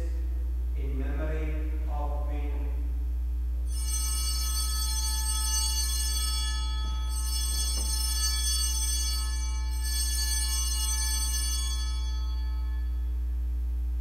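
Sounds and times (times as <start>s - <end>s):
steady low hum: 0.0s - 14.0s
altar bells ringing: 3.7s - 13.1s.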